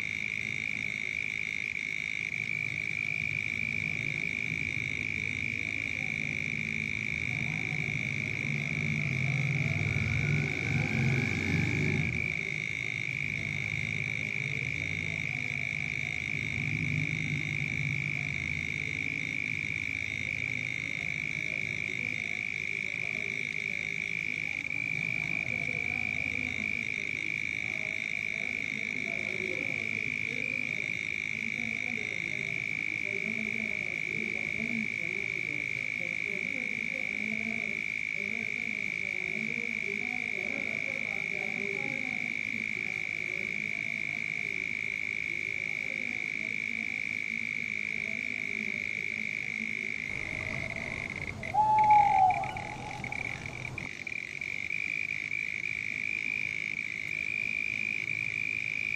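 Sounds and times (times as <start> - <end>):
frogs croaking: 0.0 - 58.9
high-pitched drone: 50.1 - 53.9.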